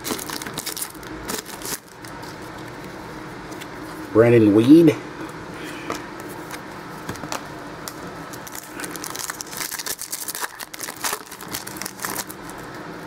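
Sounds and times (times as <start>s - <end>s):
foil wrapper crinkling: 0.0s - 2.8s, 8.4s - 13.0s.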